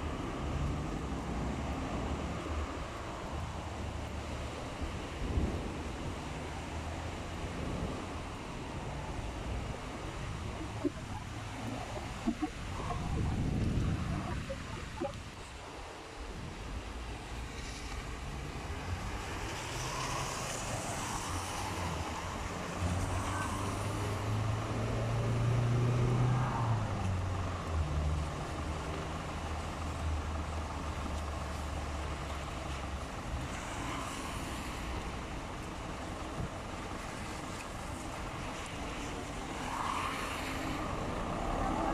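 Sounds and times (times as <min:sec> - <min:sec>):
wet street noise hiss: 0:00.0 - 0:41.9
bus engine idling: 0:27.0 - 0:33.5.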